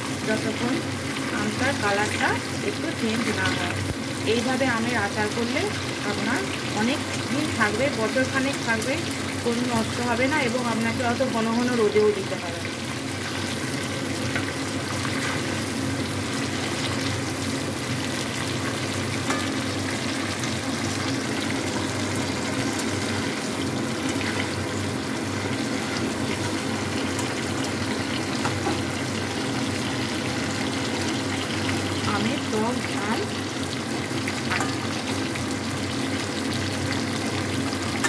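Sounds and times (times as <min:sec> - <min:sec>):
mango pieces sizzling in oil: 0:00.0 - 0:38.0
spatula stirring in pan: 0:13.1 - 0:17.2, 0:18.5 - 0:20.2.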